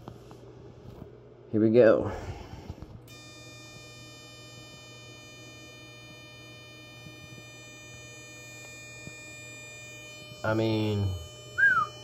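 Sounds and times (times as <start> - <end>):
transformer electrical whine: 2.1 - 12.0.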